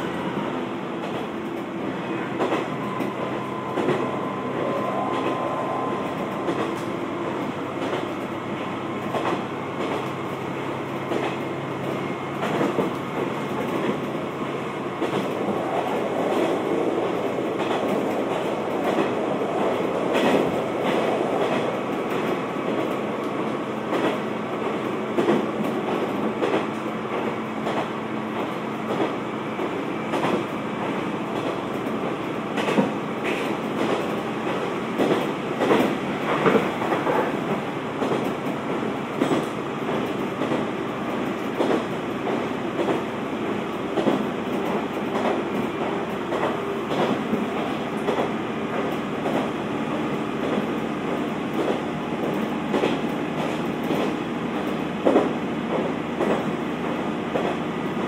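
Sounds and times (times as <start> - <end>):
railcar engine and wheels rumbling: 0.0 - 58.0.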